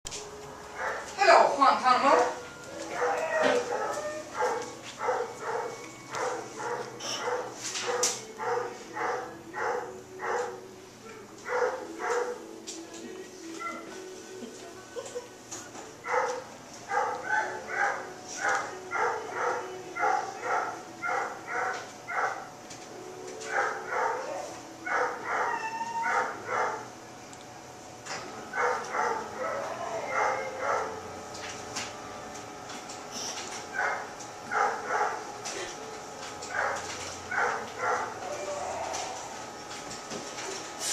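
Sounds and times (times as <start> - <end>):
dog barking: 0.8 - 1.1, 2.2 - 10.6, 11.4 - 12.4, 16.1 - 22.5, 23.5 - 26.9, 28.5 - 31.0, 33.7 - 35.3, 36.5 - 38.3.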